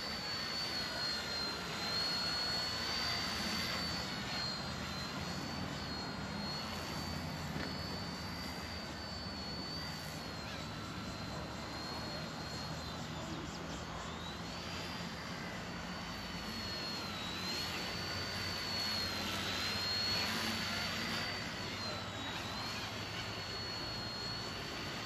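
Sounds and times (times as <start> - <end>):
toy helicopter rotor whining: 0.0 - 25.0.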